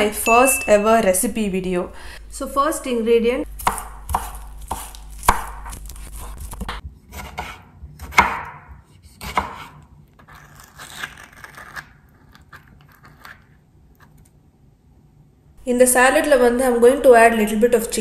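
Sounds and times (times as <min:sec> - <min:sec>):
knife chopping on wooden board: 0:03.5 - 0:09.8.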